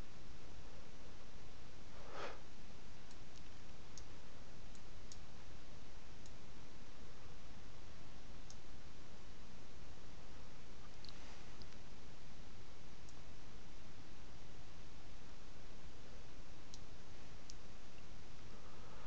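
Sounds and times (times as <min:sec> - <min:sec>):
microphone and room hiss: 0:00.0 - 0:19.0
soft rush of noise: 0:00.0 - 0:19.0.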